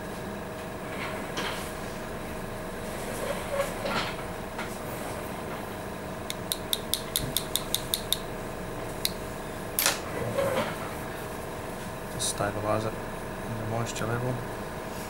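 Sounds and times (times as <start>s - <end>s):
steady mechanical hum: 0.0s - 15.0s
instrument tapping stone model: 6.3s - 8.2s.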